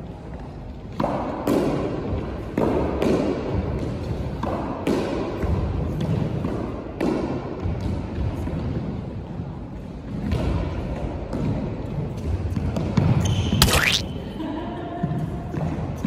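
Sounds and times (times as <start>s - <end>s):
squash racket strikes: 13.6s - 14.1s.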